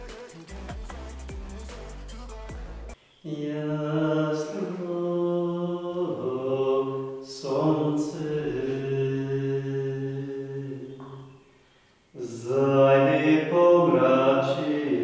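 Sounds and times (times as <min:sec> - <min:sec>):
background music: 0:00.0 - 0:03.0
man singing unaccompanied chant: 0:00.0 - 0:11.4, 0:12.2 - 0:15.0.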